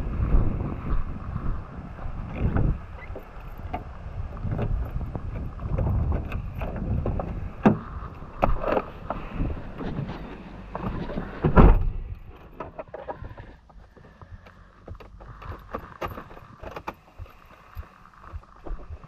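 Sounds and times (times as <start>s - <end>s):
wind buffeting microphone: 0.0s - 12.4s
sharp clicks and knocks: 2.3s - 9.2s, 9.8s - 19.0s.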